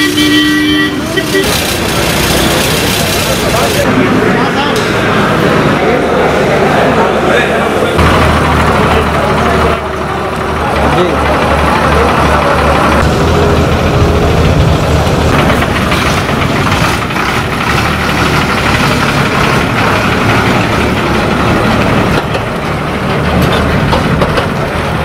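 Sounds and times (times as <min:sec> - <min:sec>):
diesel bus engine running: 0:00.0 - 0:25.0.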